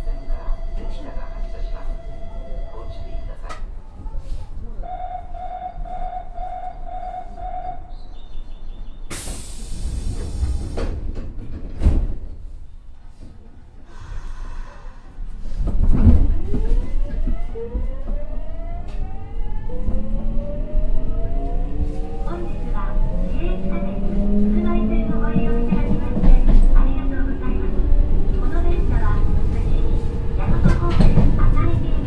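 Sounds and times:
pulsing door warning tone: 4.9s - 7.9s
air hiss of closing doors: 9.1s - 11.0s.

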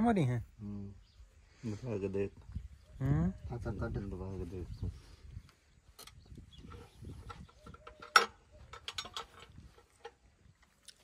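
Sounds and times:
metal clicks and clanks: 6.0s - 10.2s.

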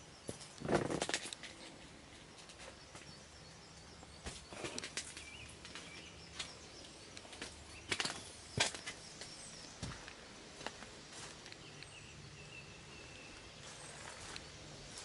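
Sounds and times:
outdoor background noise: 0.0s - 15.0s
footsteps and rustling: 4.0s - 11.9s, 13.4s - 15.0s.

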